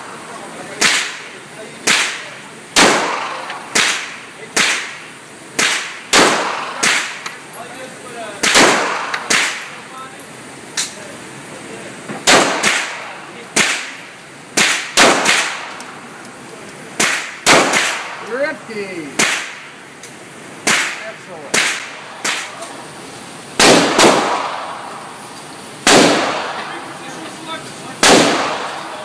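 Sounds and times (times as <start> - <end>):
pistol shots echoing indoors: 2.8 - 5.0, 5.6 - 7.2, 8.4 - 9.7, 12.2 - 14.0, 14.6 - 15.8, 17.0 - 18.2, 19.2 - 19.6, 23.6 - 25.0, 25.8 - 26.6, 28.0 - 29.0.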